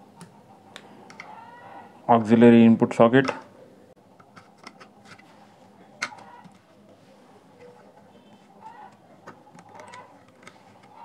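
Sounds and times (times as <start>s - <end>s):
light handling noise: 4.2s - 11.0s
metal tweezers clicking on plastic: 8.9s - 11.0s.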